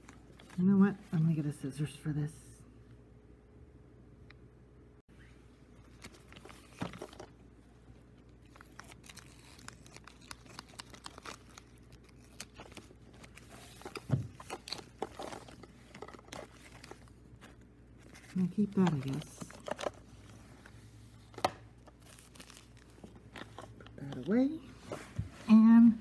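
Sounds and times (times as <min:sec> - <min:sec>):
plastic bag crinkling: 0:05.8 - 0:20.3, 0:21.8 - 0:24.3.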